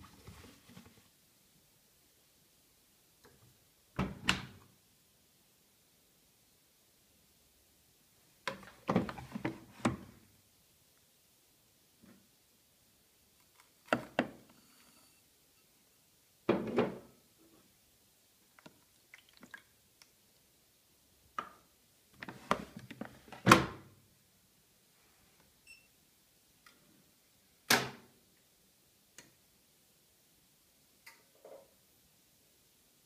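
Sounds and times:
plastic drawer knocks and thunks: 0:08.8 - 0:10.1
faint short beep: 0:14.6 - 0:15.7.

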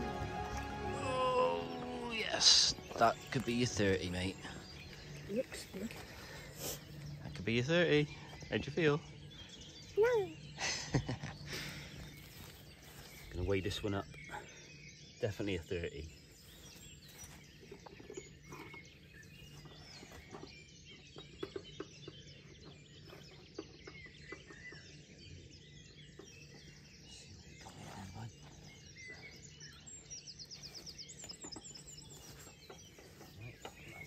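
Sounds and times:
bird trill of high notes: 0:00.0 - 0:06.1
small birds chirping: 0:00.0 - 0:34.0.

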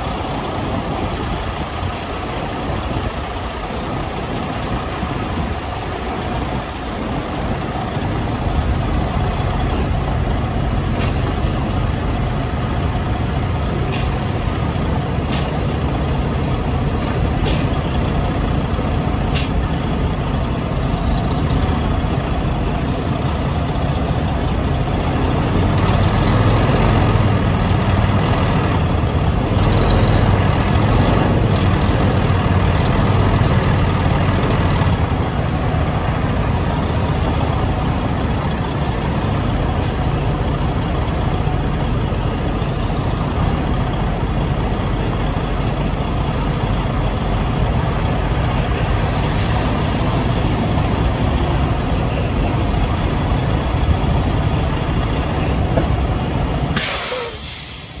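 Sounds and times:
diesel truck engine running: 0:00.0 - 0:58.0
air hiss: 0:19.3 - 0:19.9, 0:56.8 - 0:58.0.

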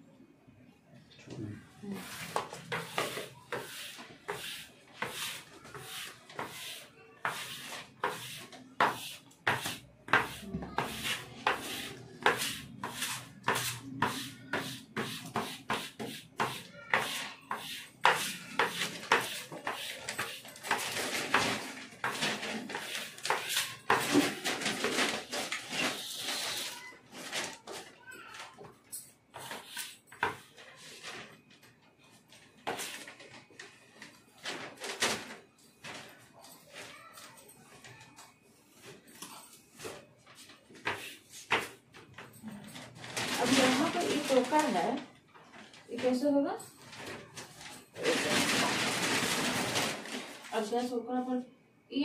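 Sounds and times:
plastic squeegee scraping sheet: 0:01.8 - 0:27.8, 0:47.0 - 0:50.7.

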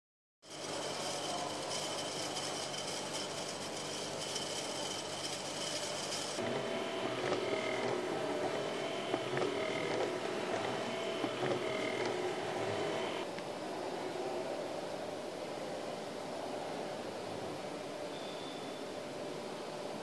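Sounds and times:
beads clicking rolling round: 0:00.4 - 0:06.4
small electric fan running: 0:00.4 - 0:13.3
motorised installation humming: 0:00.5 - 0:13.3.

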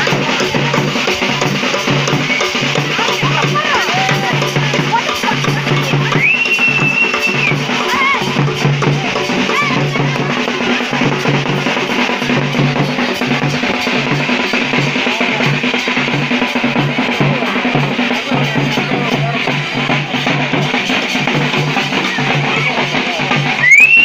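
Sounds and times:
frame drums and barrel drum: 0:00.0 - 0:24.0
long flat whistle: 0:06.2 - 0:07.5, 0:23.6 - 0:24.0.

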